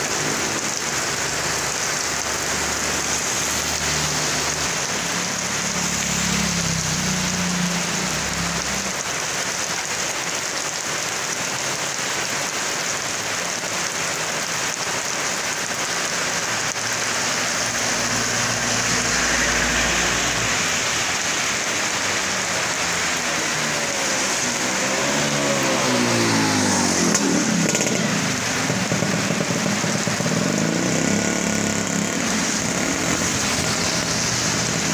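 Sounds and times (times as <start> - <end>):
rain pouring on asphalt: 0.0 - 34.9
vehicle driving on wet road: 0.0 - 34.9
motorcycle engine passing: 22.9 - 34.9.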